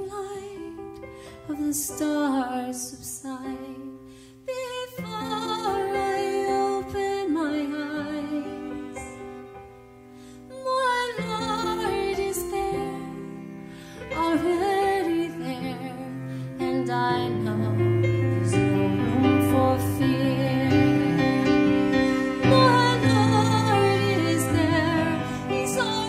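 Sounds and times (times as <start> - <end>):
woman singing: 0.0 - 9.2, 10.5 - 26.0
keyboard chords: 11.1 - 26.0
cello: 11.2 - 26.0.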